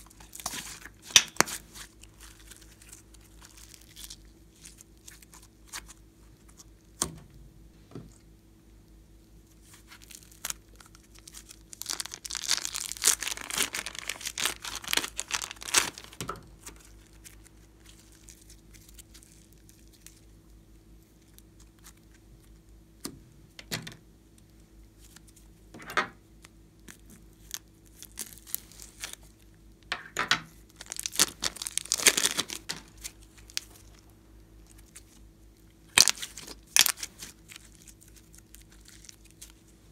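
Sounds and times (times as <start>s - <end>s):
slime crackling and popping: 0.0s - 6.0s, 9.7s - 20.2s, 30.7s - 39.6s.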